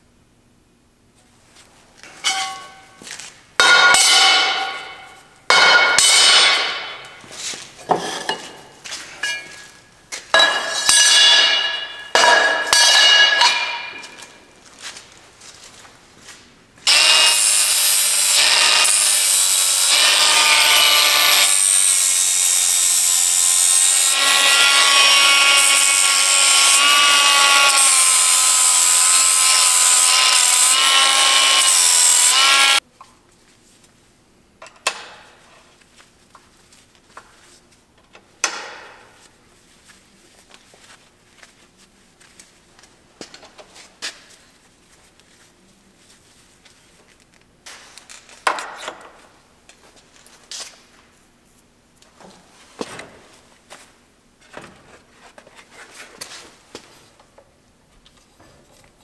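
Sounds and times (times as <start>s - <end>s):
steel clanking on metal table: 2.2s - 2.9s
angle grinder grinding steel: 16.9s - 32.8s.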